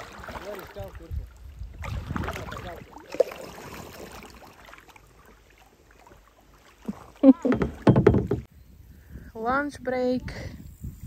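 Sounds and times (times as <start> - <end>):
paddle splashing in water: 0.0 - 8.5.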